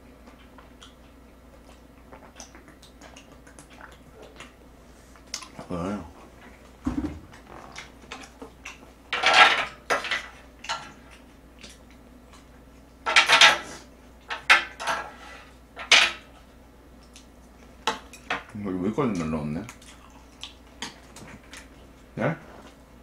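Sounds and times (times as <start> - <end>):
metal utensils clattering on grill: 9.1 - 10.9.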